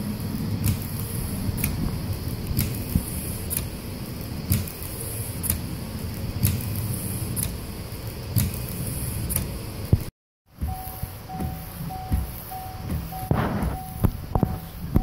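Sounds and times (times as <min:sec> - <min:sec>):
wiper blade knock: 0:09.9 - 0:15.0
wipers rubbing on glass: 0:10.6 - 0:15.0.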